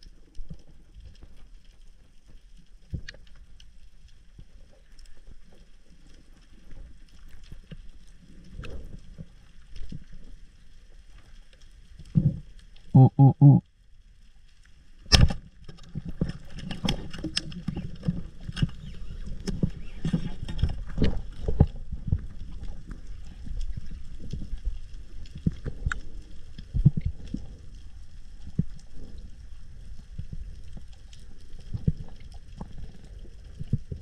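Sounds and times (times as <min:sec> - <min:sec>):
underwater rumble of moving water: 0:00.0 - 0:34.0
clicks and pops underwater: 0:02.8 - 0:03.4, 0:15.0 - 0:27.6.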